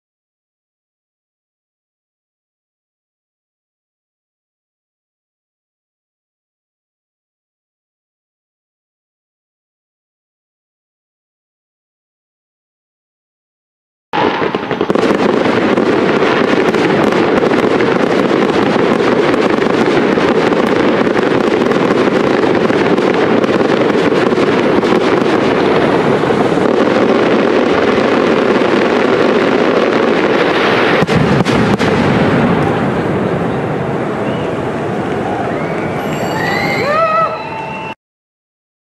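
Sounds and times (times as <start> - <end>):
firework shell bursts and crackling: 14.2 - 33.4
loud firework bangs: 14.2 - 37.0.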